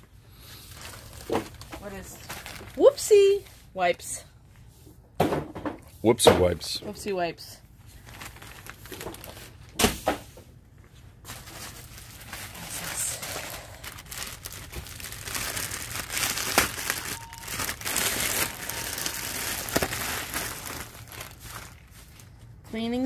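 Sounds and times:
plastic packaging crinkling: 0.4s - 3.3s, 7.8s - 9.7s, 11.3s - 22.6s.

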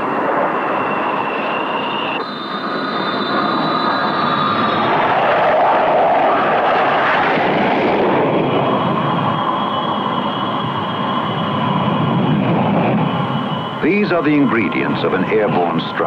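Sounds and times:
high engine whine: 0.0s - 16.0s
jet engines rushing: 0.0s - 16.0s.

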